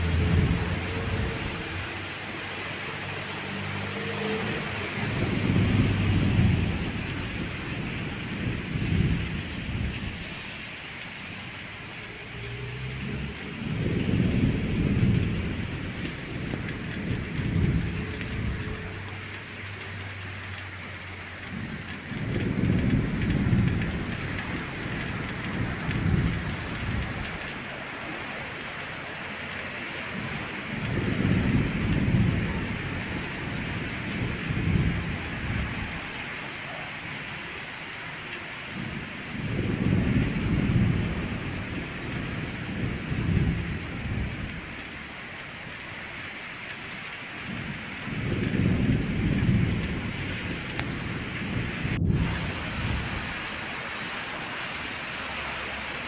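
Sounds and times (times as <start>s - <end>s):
rain hissing: 0.0s - 56.0s
thunder rumbling: 0.0s - 56.0s.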